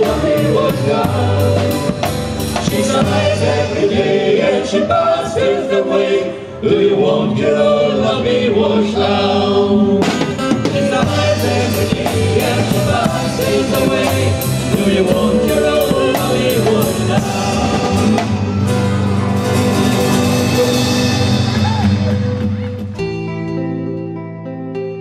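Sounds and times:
drum kit beat: 0:00.0 - 0:04.0, 0:10.0 - 0:23.4.

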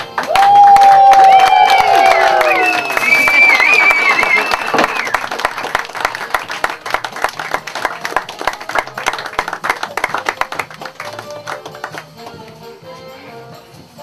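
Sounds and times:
audience applauding: 0:00.0 - 0:12.3
faint music: 0:04.9 - 0:14.0.

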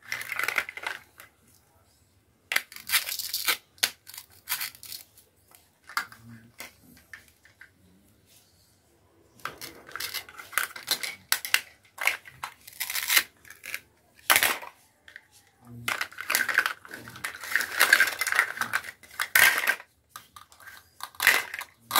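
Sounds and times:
plastic pieces clicking: 0:00.0 - 0:01.3, 0:02.5 - 0:07.7, 0:09.4 - 0:14.8, 0:15.8 - 0:21.9.

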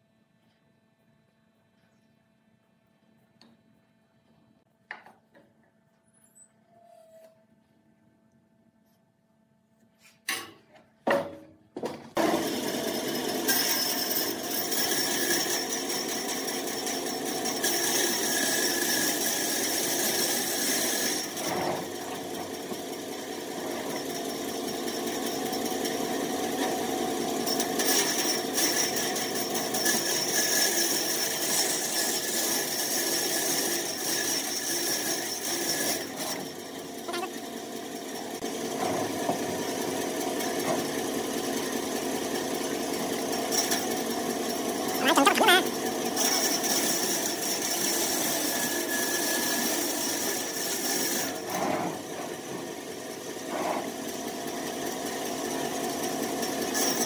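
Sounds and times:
band saw cutting log: 0:29.8 - 0:37.8, 0:44.9 - 0:52.1.

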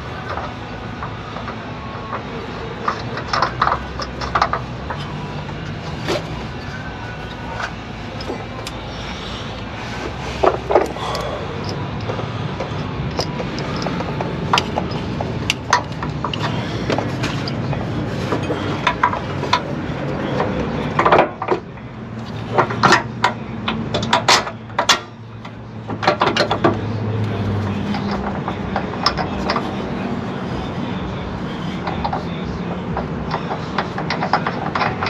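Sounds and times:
steady low hum: 0:00.0 - 0:35.0
wrench and bolts clinking on metal: 0:02.8 - 0:08.8, 0:10.4 - 0:19.7, 0:27.6 - 0:29.9, 0:32.9 - 0:35.0.

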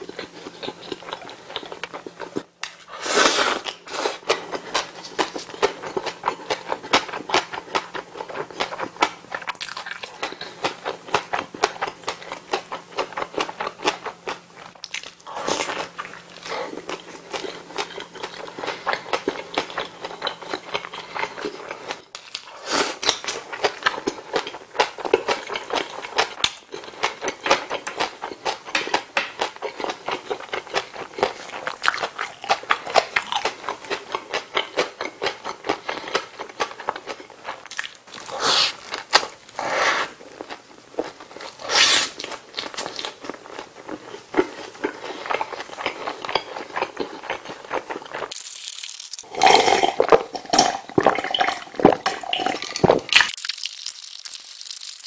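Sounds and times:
bites and crunches: 0:36.9 - 0:55.0.

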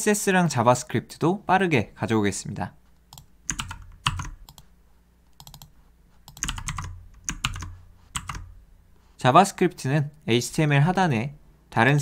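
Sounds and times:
keyboard keystrokes: 0:03.1 - 0:04.7, 0:05.4 - 0:05.7, 0:06.3 - 0:08.5.

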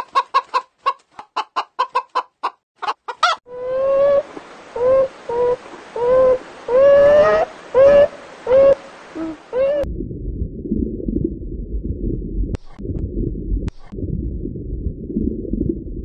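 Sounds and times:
low rumbling noise: 0:03.5 - 0:16.0.

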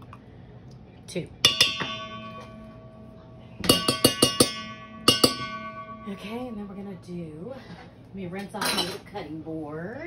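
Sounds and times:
metal spoon striking ringing bowl: 0:01.4 - 0:07.3.

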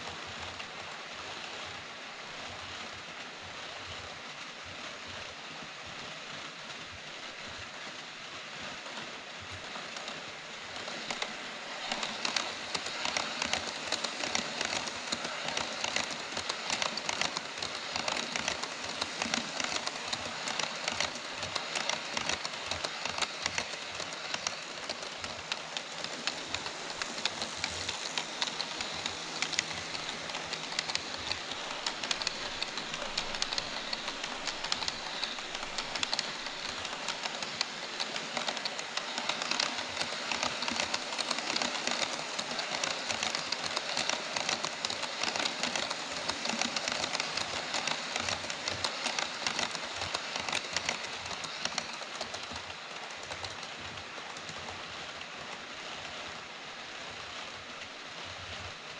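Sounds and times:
model trains rolling: 0:00.0 - 0:58.9
wheel clicks: 0:10.8 - 0:54.8.

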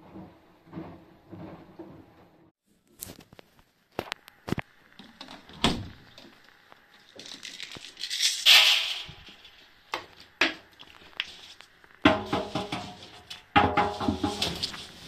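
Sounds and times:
tennis balls bouncing in metal drum: 0:12.1 - 0:14.6.

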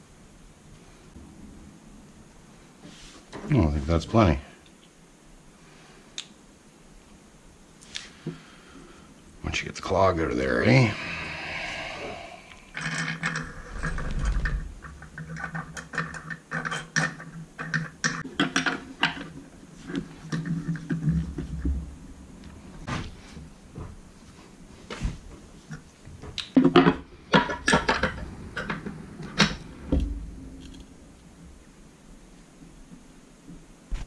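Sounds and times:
tools and metal parts clinking: 0:12.8 - 0:19.4.

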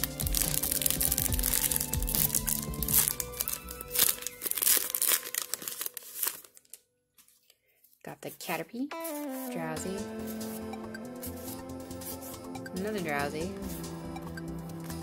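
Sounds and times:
background music: 0:00.0 - 0:06.3, 0:08.9 - 0:15.0
foil wrapper crinkling and tearing: 0:00.0 - 0:08.0.

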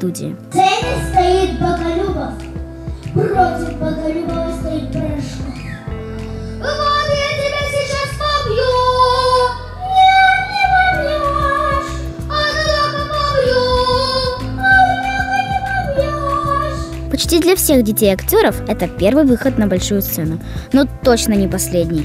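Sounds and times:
low musical accompaniment: 0:00.0 - 0:22.0
girl singing into a microphone: 0:00.5 - 0:05.8, 0:06.5 - 0:18.1.

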